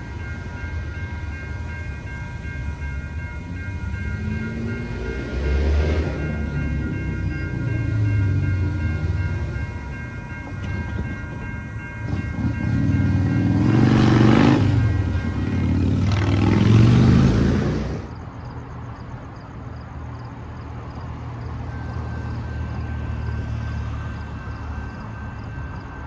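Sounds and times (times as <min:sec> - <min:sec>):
steady chord of tones: 0:00.0 - 0:17.8
cars passing over crossing: 0:00.0 - 0:26.0.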